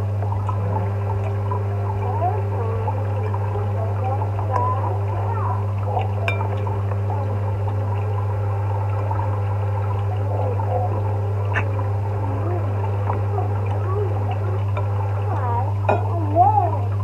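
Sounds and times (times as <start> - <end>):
faint wavering sounds: 0.0 - 17.0
low hum: 0.0 - 17.0.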